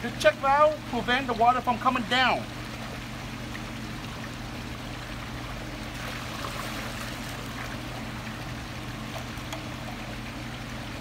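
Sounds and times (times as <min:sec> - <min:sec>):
constant low hum: 0:00.0 - 0:11.0
water running and trickling: 0:00.0 - 0:11.0
water splashing and dripping: 0:02.5 - 0:11.0.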